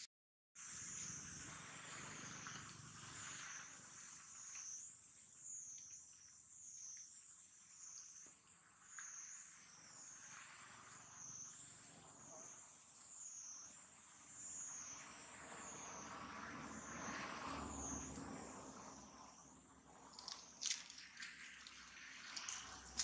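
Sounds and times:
high-pitched insect chorus: 0.6 - 23.0.

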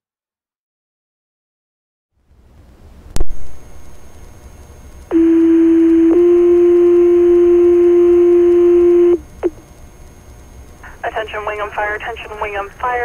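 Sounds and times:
radio static hiss: 3.1 - 6.7, 8.3 - 13.0.

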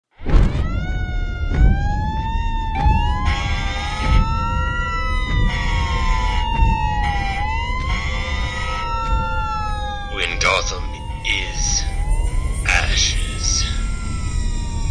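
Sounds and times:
low rumble: 0.3 - 8.0, 10.9 - 14.9
emergency sirens wailing: 0.3 - 14.9.

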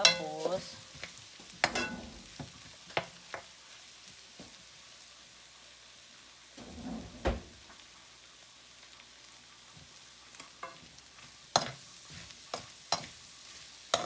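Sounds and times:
spoon clinking and scraping pan: 0.0 - 3.5, 10.4 - 10.9, 11.5 - 14.0
meat sizzling in a metal pan: 0.0 - 14.0.

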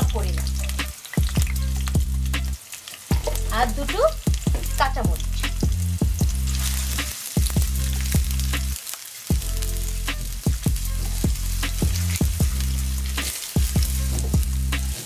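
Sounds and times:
background music with thumping beat: 0.0 - 15.0
onions sizzling in hot oil: 0.0 - 15.0.

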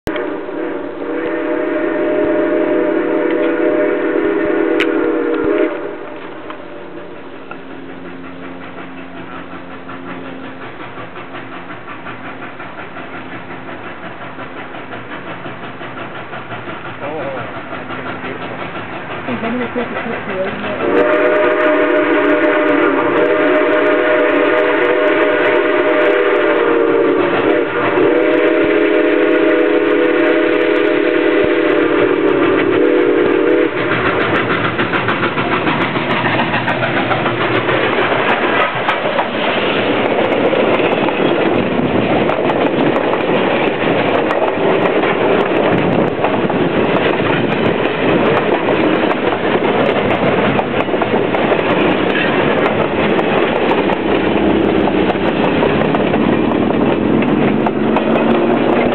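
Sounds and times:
steam whistle blast: 0.1 - 7.2, 20.8 - 33.9
steam hissing: 0.1 - 58.9
train cars rumbling on rails: 0.1 - 58.9.

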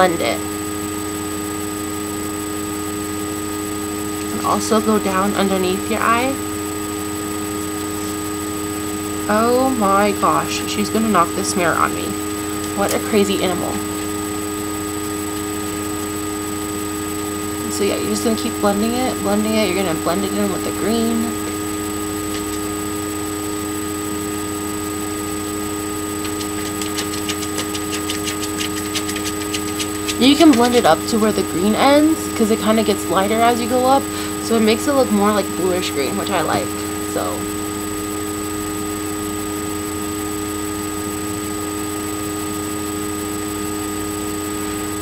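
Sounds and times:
steady background hum: 0.0 - 45.0
steady hiss: 17.4 - 36.5
fast light ticks: 22.2 - 22.7, 26.2 - 30.8.

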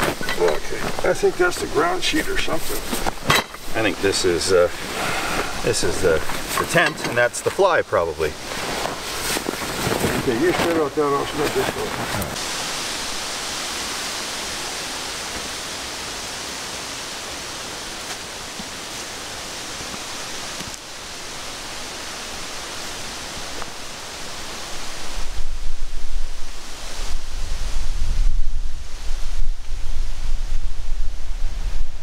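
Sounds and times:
wind hiss: 0.0 - 32.0
gusts buffeting microphone: 24.2 - 32.0.

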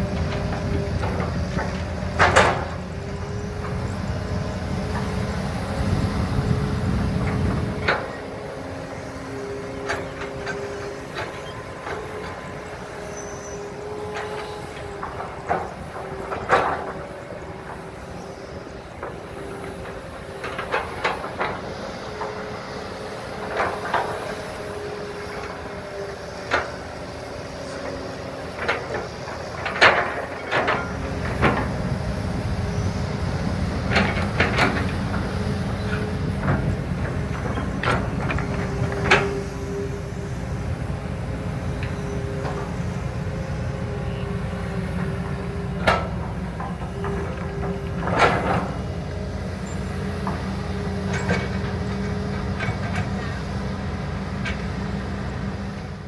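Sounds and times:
diesel engine drone: 0.0 - 56.0
hydraulic whine: 0.0 - 56.0
excavator bucket clanks and knocks: 0.2 - 2.9.

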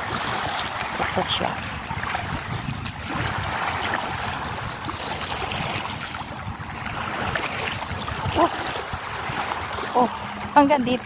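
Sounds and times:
small waves lapping over stones: 0.0 - 11.0.

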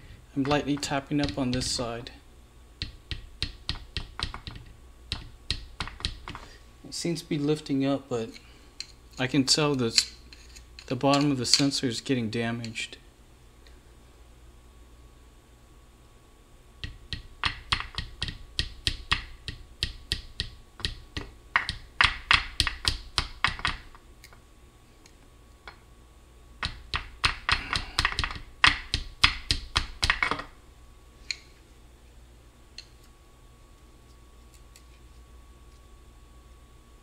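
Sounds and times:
hammer tapping on screwdriver: 2.8 - 6.4.

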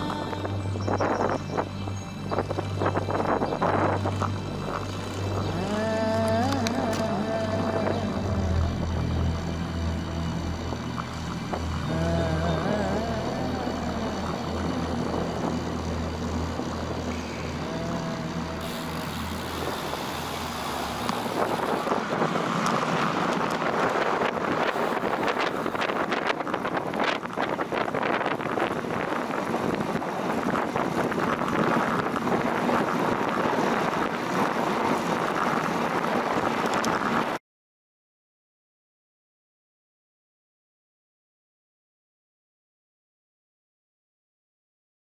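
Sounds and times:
wind rushing over microphone: 0.0 - 9.4, 10.6 - 37.4
wind crackles: 0.0 - 37.4.

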